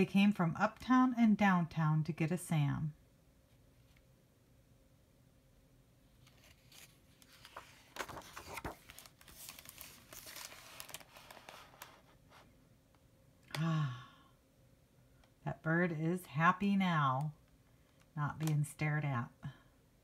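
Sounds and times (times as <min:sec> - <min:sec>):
book pages turning: 0:06.1 - 0:12.4.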